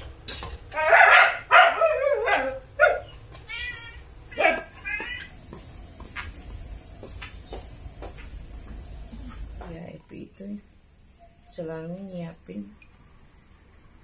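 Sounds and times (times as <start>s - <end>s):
dog barking: 0.8s - 3.1s, 4.3s - 4.8s
dog yipping and whining: 0.8s - 5.1s.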